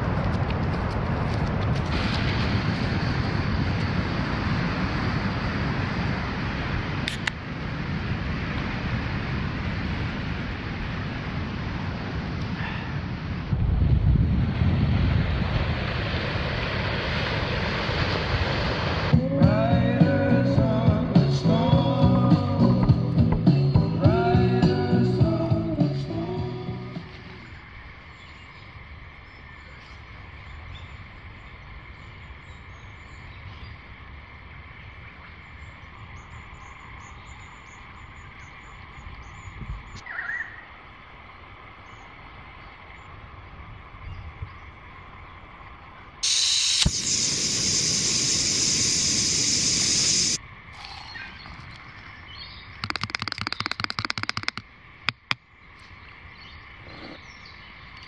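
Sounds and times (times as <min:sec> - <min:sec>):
loud steady hiss: 0:14.5 - 0:39.4, 0:40.8 - 0:51.2
music: 0:19.2 - 0:27.4
bird chirps: 0:52.2 - 0:54.6.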